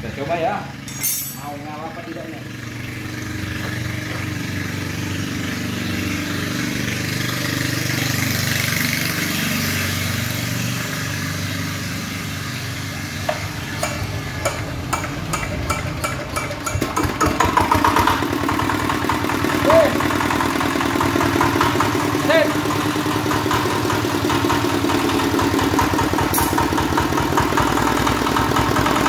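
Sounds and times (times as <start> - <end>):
diesel engine running: 0.0 - 29.0
sharp clicks and knocks: 13.3 - 17.8.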